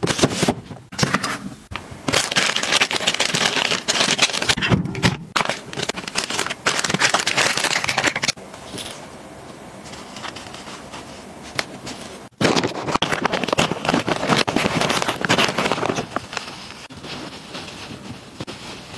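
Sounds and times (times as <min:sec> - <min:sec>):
diaper pack crinkling: 0:02.1 - 0:04.6, 0:05.4 - 0:08.4, 0:12.4 - 0:16.8
plastic packaging crinkling: 0:02.1 - 0:04.6, 0:05.4 - 0:08.8, 0:11.9 - 0:18.9.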